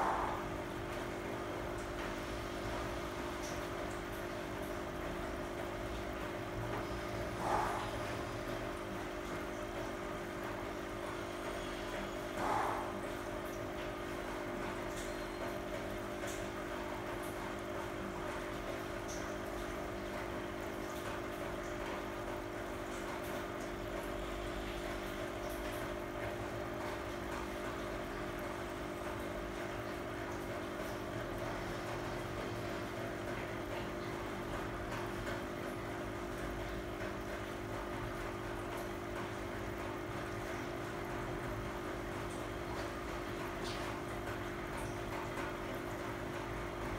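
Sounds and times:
water bubbling: 0.0s - 0.8s
aquarium pump humming: 0.0s - 46.9s.

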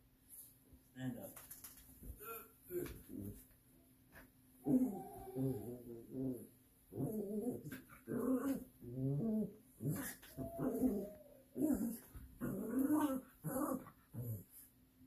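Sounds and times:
small dog growling: 4.6s - 14.6s.

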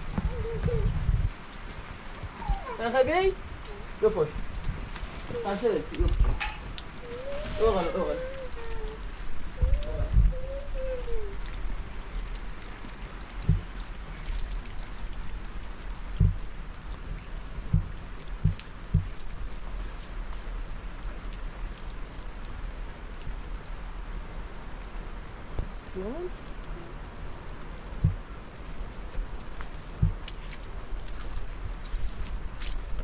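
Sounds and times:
rain falling: 0.0s - 33.0s
dull low thuds: 13.4s - 13.8s, 16.1s - 16.6s, 17.6s - 19.2s, 28.0s - 28.3s, 29.9s - 30.3s.

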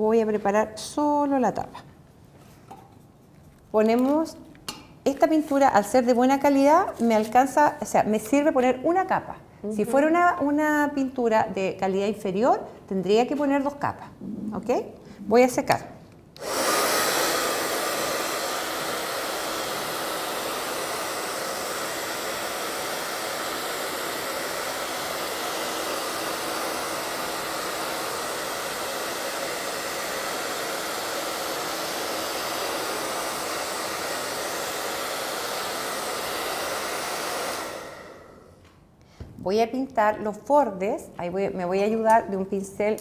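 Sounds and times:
hair dryer blowing: 16.4s - 38.6s.

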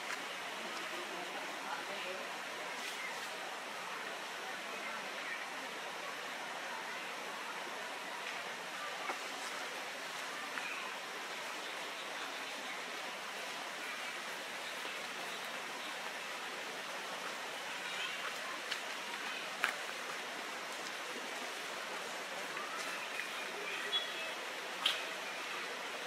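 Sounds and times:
outdoor background hiss: 0.0s - 26.0s
faint sharp clicks: 24.8s - 25.2s.

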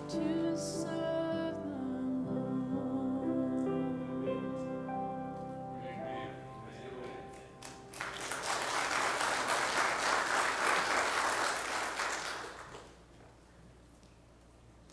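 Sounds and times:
grand piano chord: 0.0s - 8.0s
congregation applauding: 6.8s - 13.1s.

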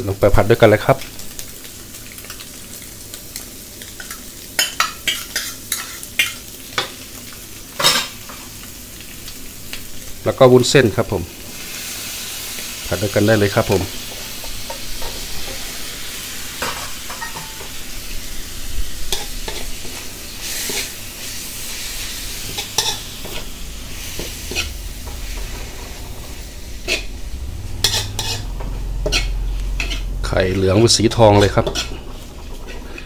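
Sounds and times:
frying sizzle in wok: 0.0s - 33.0s
spatula scraping and knocking pan: 22.4s - 30.7s, 31.3s - 32.8s.

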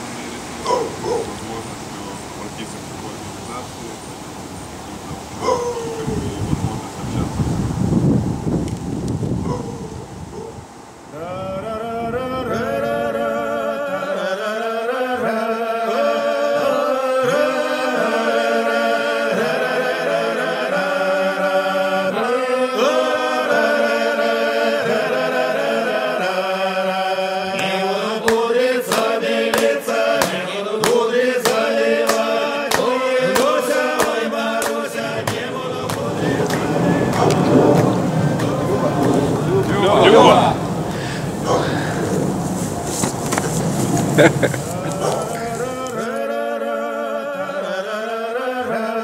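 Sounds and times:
men singing a cappella chant: 11.1s - 42.1s, 44.2s - 49.0s.

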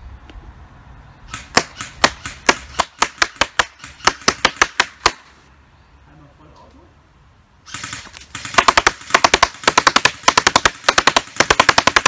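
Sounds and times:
airsoft gun shots: 1.3s - 5.3s, 7.7s - 12.0s.

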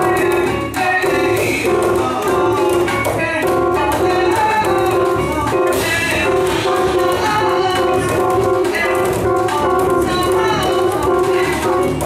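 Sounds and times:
live band music: 0.0s - 12.0s.

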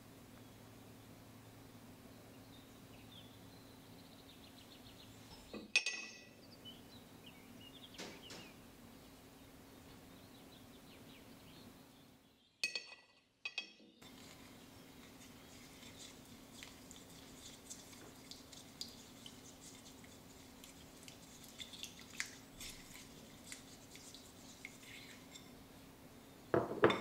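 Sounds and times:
ceramic tableware clinking: 5.4s - 6.4s, 12.6s - 13.9s, 26.6s - 27.0s.

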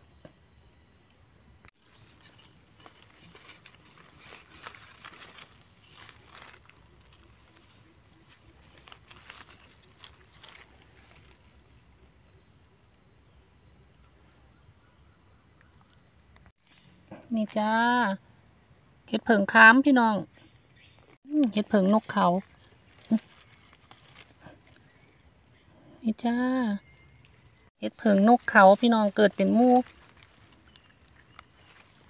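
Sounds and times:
insects chorus: 0.0s - 32.0s
knife scraping in soil and leaves: 1.8s - 11.8s, 22.2s - 24.8s, 28.0s - 32.0s.

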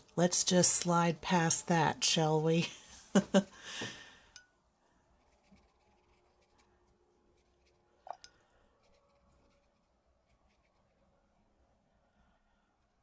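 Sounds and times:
paintbrush stroking paper: 5.2s - 7.9s, 8.8s - 11.0s.

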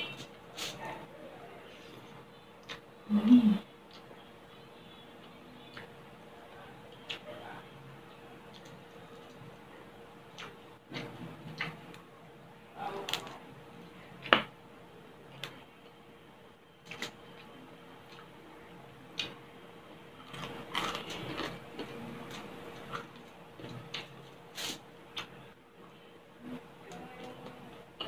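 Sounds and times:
crunching and chewing crispy food: 20.2s - 25.3s.

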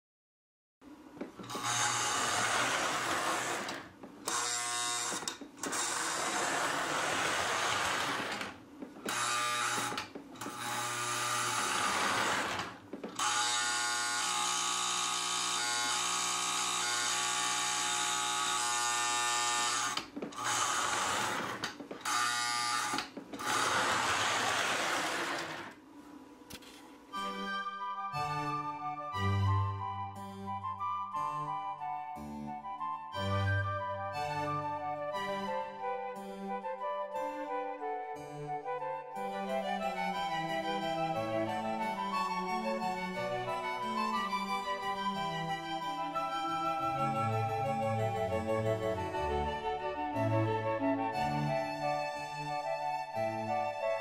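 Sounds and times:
toy train motor buzz and whine: 1.4s - 25.8s.

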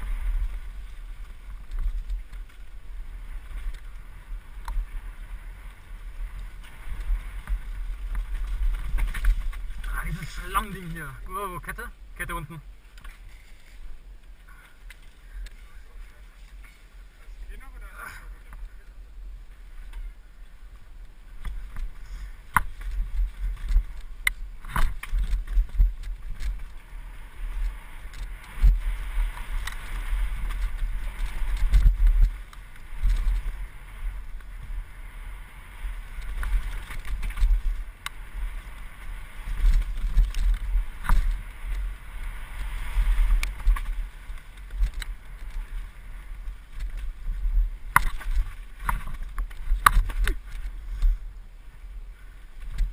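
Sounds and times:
bike tyres rolling over dirt: 0.0s - 52.9s
low uneven rumble: 0.0s - 52.9s.

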